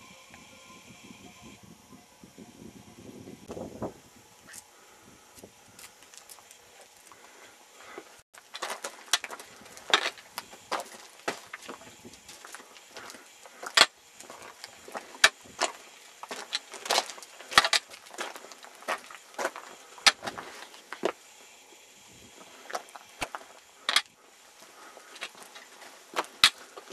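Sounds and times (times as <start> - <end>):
footsteps crunching on gravel: 5.8 - 21.2, 22.4 - 26.9.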